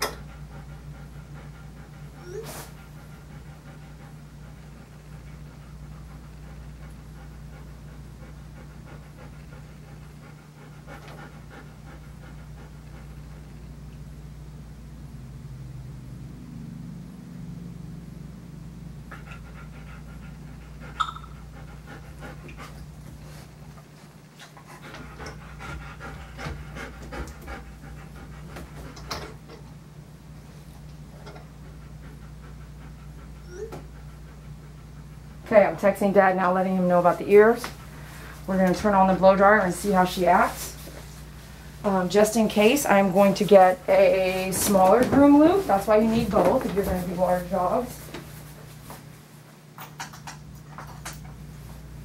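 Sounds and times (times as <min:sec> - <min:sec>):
dog panting: 0:00.0 - 0:13.7, 0:19.0 - 0:29.6, 0:30.5 - 0:41.2, 0:41.9 - 0:48.2
steady low hum: 0:00.0 - 0:52.0.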